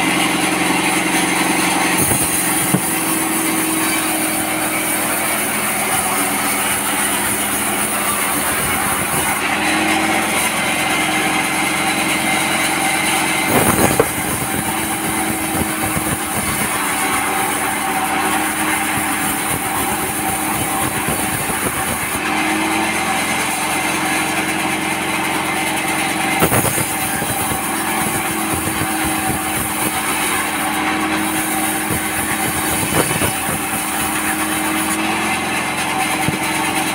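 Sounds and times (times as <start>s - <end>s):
band saw machine drone: 0.0s - 36.9s
sharp knocks: 2.0s - 4.4s.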